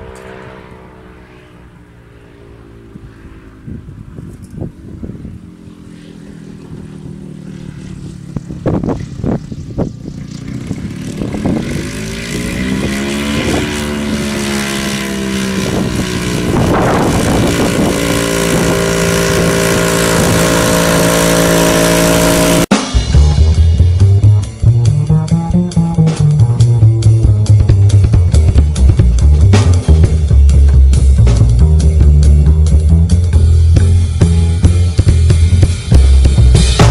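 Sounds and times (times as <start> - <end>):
light airplane engine and propeller: 0.0 - 36.9
wind gusts on microphone: 2.8 - 22.0.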